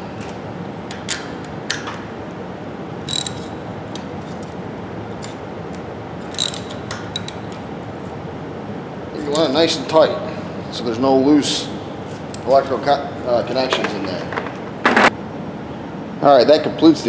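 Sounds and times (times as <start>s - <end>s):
ratchet wrench clicking: 3.1s - 4.0s, 6.2s - 7.4s.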